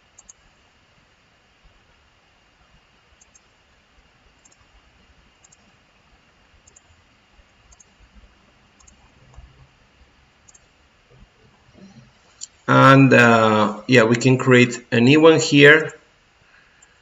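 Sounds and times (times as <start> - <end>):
computer mouse clicking: 0.2 - 0.5, 3.2 - 3.5, 4.4 - 4.7, 5.4 - 5.7, 6.6 - 7.0, 7.7 - 8.0, 8.8 - 9.5, 10.4 - 10.7.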